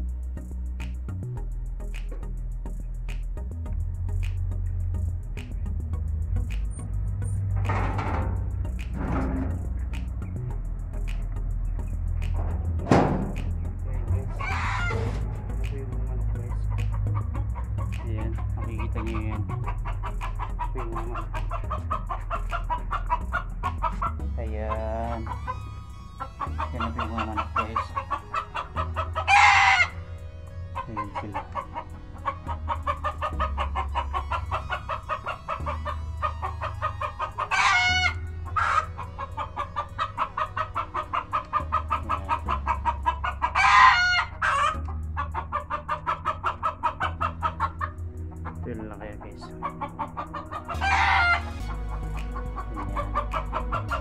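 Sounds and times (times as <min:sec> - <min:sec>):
chickens clucking: 0:07.5 - 0:10.4, 0:11.0 - 0:54.0
rooster crowing: 0:29.2 - 0:30.0, 0:37.5 - 0:38.9, 0:43.6 - 0:44.7, 0:50.7 - 0:51.6.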